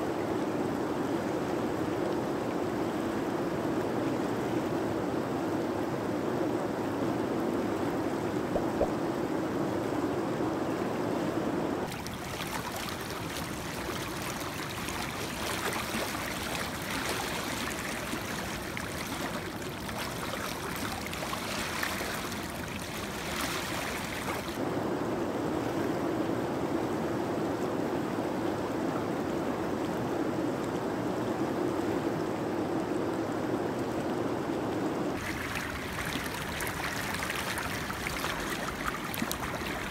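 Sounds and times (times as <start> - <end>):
shallow river rushing: 0.2 - 24.6, 35.1 - 39.9.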